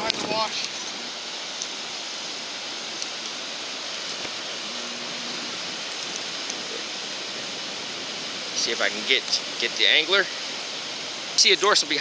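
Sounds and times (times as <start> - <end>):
ocean surf breaking: 0.0 - 12.0.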